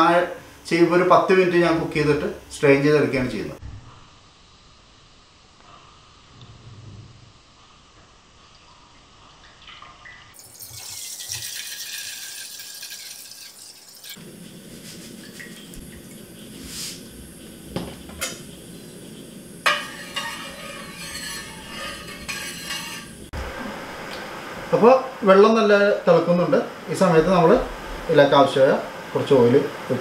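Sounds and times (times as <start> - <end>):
water pouring into a pot: 8.6 - 14.6
spoon scraping a metal pot: 19.6 - 23.3.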